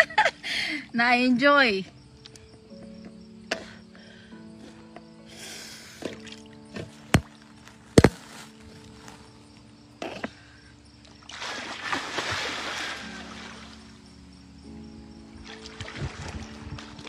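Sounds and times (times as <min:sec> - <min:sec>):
faint music with held notes: 0:00.0 - 0:17.0
water splashing: 0:11.1 - 0:14.0, 0:15.4 - 0:17.0.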